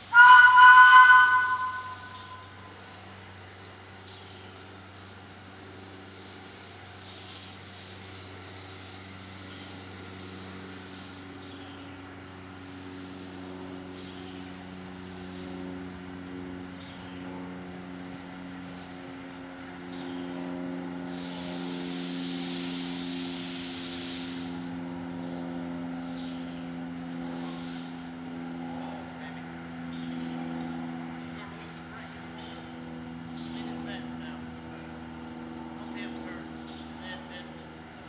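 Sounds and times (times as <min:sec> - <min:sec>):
low hum: 0:00.0 - 0:02.9
steam hiss: 0:21.1 - 0:24.6, 0:27.3 - 0:27.9.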